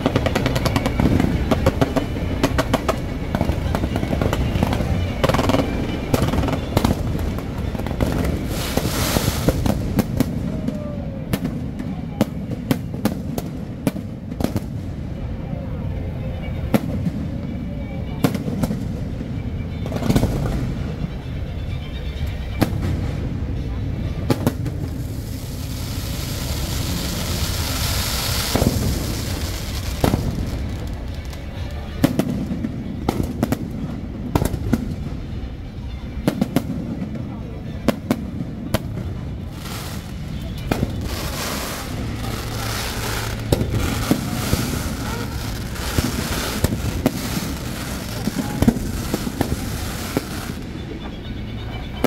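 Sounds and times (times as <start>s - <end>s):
fireworks bangs: 0.0s - 15.3s, 16.4s - 21.1s, 22.6s - 35.5s, 36.2s - 51.6s
rushing hiss: 8.4s - 9.9s, 25.1s - 30.7s.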